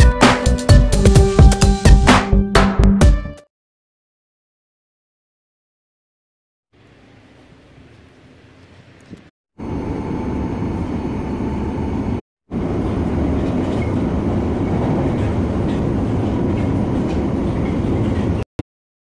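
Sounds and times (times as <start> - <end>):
train rumbling and rattling: 10.5 - 18.4.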